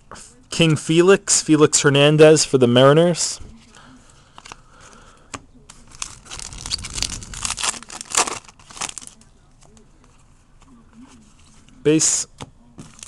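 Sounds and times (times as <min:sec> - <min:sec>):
foil wrapper tearing and crinkling: 0:05.8 - 0:09.2.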